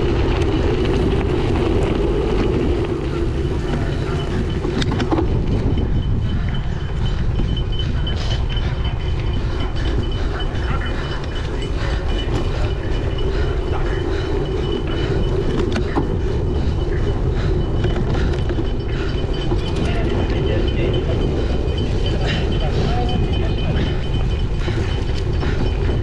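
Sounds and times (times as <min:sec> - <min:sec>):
bike rattling and clicking: 0:00.0 - 0:26.0
wind buffeting microphone: 0:00.0 - 0:26.0.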